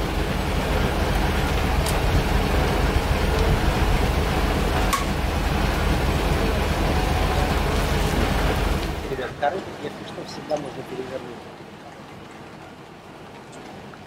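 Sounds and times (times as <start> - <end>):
wind rushing over microphone: 0.0 - 9.2.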